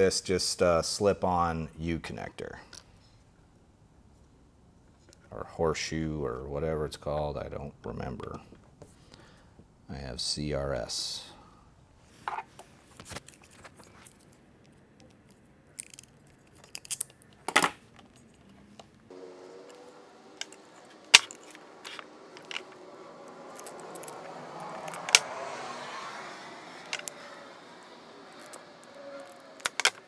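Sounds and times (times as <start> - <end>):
metal terminals clinking: 14.1 - 19.0, 19.6 - 25.2, 26.8 - 30.0.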